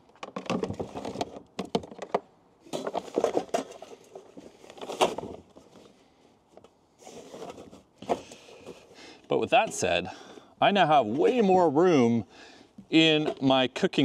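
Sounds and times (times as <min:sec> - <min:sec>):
knocks and clatter of handling: 0:00.0 - 0:05.9.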